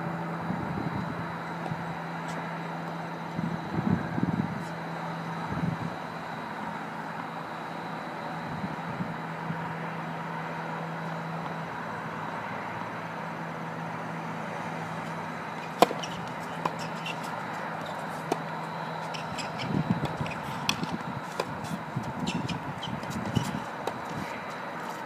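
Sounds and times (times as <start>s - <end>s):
steady background hum: 0.0s - 25.0s
racket hitting tennis ball: 15.0s - 25.0s
footsteps on hard court: 15.1s - 25.0s.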